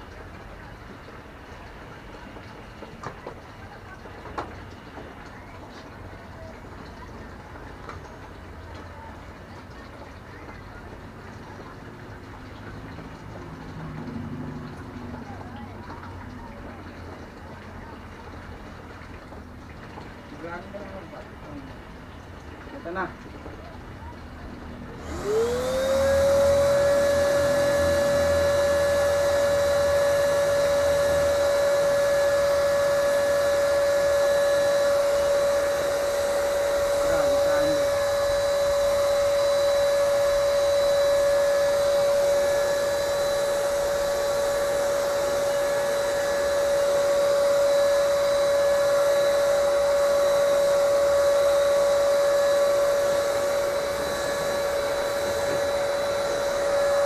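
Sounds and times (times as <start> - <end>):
paint spray gun motor whine: 24.9 - 57.0.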